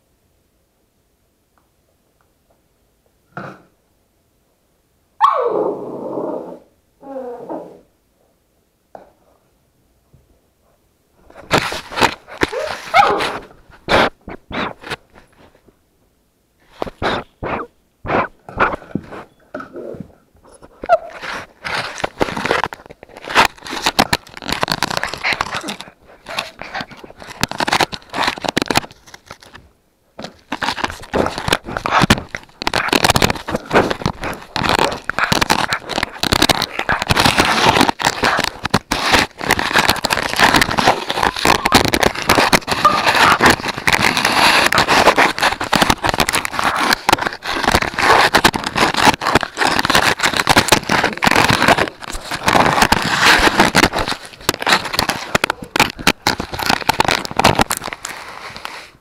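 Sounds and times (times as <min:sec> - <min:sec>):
crackling and scraping on microphone: 0:11.2 - 0:15.8, 0:16.6 - 0:59.0.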